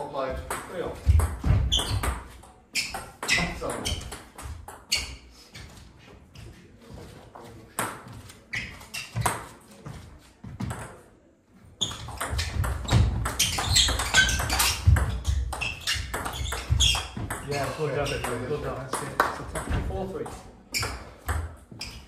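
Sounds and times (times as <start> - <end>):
footwork thumps: 0.4 - 2.4, 12.1 - 17.5.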